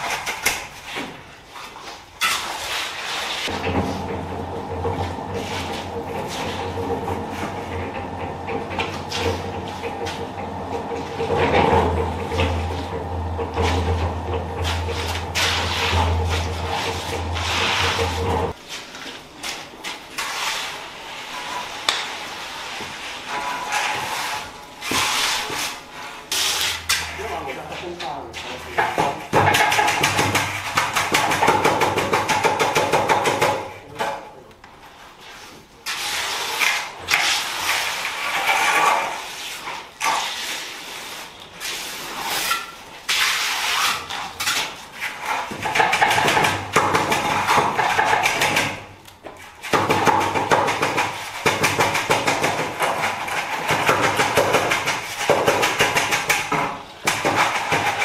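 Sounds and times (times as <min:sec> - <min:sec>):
tool tapping wet concrete: 0:26.4 - 0:34.6, 0:44.4 - 0:58.0.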